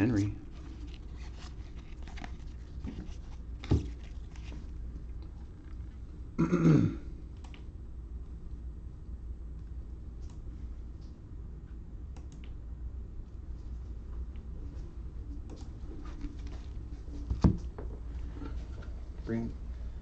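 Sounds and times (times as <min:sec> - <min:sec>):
trading cards rustling: 0:00.1 - 0:04.7
person clearing throat: 0:06.4 - 0:07.1.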